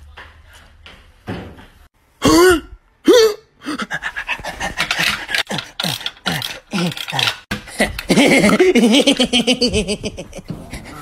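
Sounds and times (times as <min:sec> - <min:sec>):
person yelping and grunting: 0:02.2 - 0:08.6.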